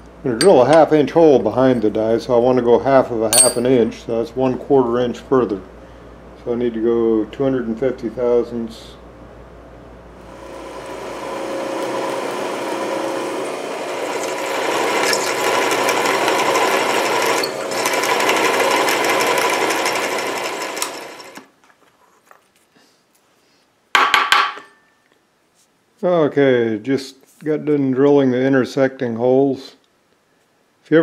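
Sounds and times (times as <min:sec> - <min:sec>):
drill press cutting metal: 0:10.3 - 0:21.5.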